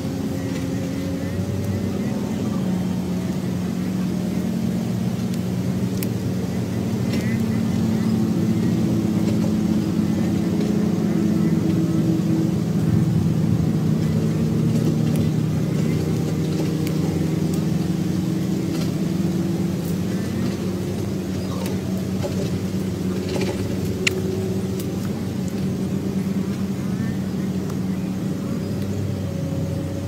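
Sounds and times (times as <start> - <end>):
low motor hum: 0.0 - 30.0
faint clicks: 5.1 - 6.2, 18.6 - 25.8, 28.7 - 29.0.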